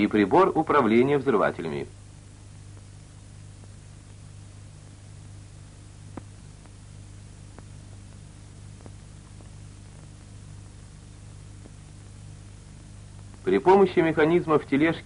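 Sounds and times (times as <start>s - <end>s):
film soundtrack hum and hiss: 0.0s - 15.0s
faint clicks: 6.1s - 6.8s, 7.5s - 10.8s, 11.6s - 13.5s.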